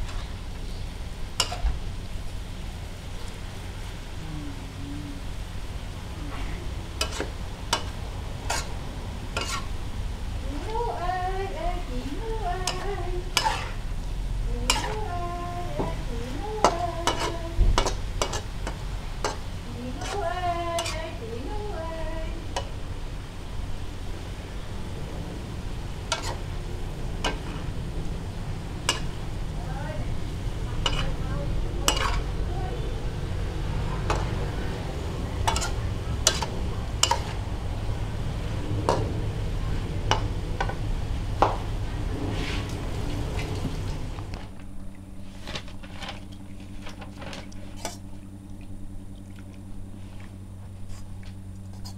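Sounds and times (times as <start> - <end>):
spatula clacking and scraping wok: 0.0 - 1.8, 6.6 - 9.9, 12.1 - 14.1, 14.7 - 15.2, 15.8 - 21.2, 22.5 - 22.8, 26.0 - 27.8, 28.8 - 29.4, 30.4 - 32.5, 33.9 - 42.8
food sizzling in a wok: 0.0 - 44.1
low hum: 0.0 - 51.9
metal spatula clinking on a wok: 20.8 - 21.0, 30.8 - 31.2, 31.9 - 32.3, 35.4 - 37.4.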